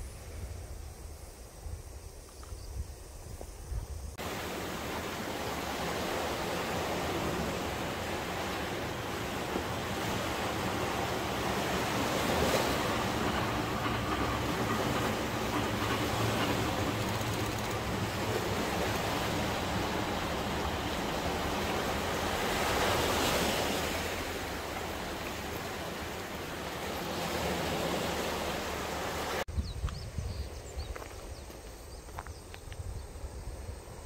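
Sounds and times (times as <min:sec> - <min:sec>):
surf breaking on beach: 0:04.2 - 0:29.4
faint ticks: 0:16.8 - 0:17.9.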